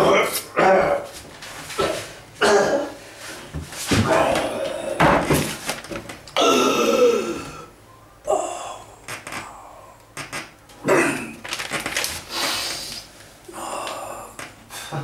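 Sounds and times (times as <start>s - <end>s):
breathy hiss: 12.2s - 15.0s.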